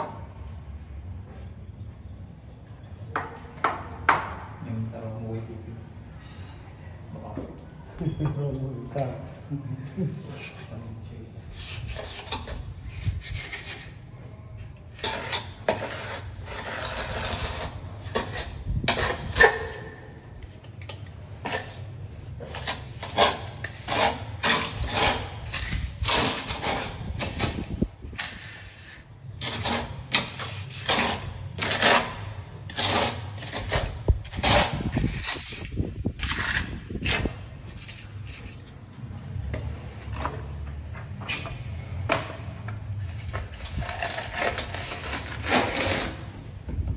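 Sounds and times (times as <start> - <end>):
hand tools scraping masonry: 10.2 - 14.0, 14.6 - 20.3, 21.3 - 38.8, 42.9 - 46.4.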